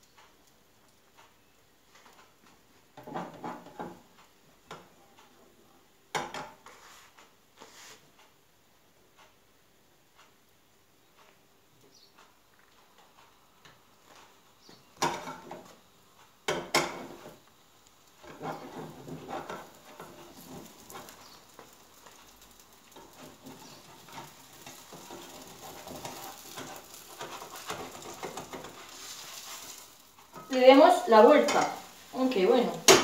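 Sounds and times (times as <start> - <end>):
crepe frying in a pan: 0.0 - 33.0
spatula scraping a pan: 3.0 - 4.0, 6.2 - 8.0, 16.5 - 17.5, 18.2 - 33.0.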